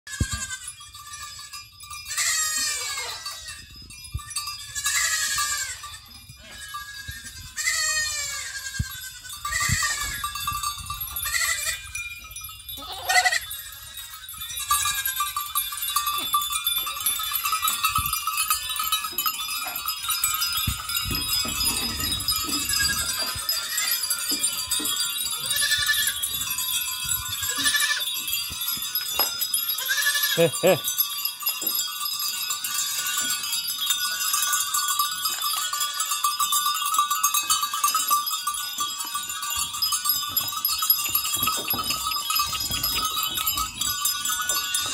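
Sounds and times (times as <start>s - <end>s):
high jingling bells: 0.1s - 44.9s
goats bleating: 4.7s - 10.1s, 12.8s - 13.5s, 27.5s - 28.1s, 29.8s - 30.8s.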